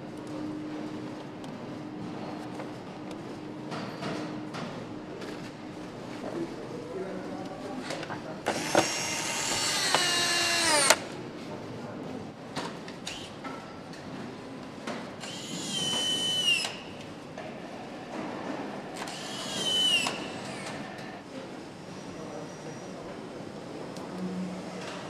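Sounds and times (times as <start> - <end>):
power screwdriver whirring: 8.5 - 11.0, 15.2 - 16.8, 19.0 - 21.1.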